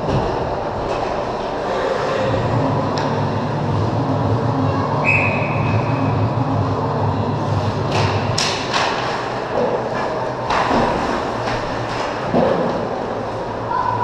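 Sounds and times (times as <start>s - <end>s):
low hum: 0.0s - 14.0s
hockey sticks and puck clacking: 7.9s - 13.0s.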